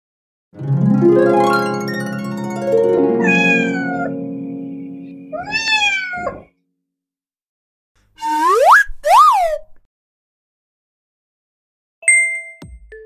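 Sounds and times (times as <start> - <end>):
plucked string music: 0.6 - 5.9
cat meowing: 3.2 - 4.1, 5.3 - 6.5.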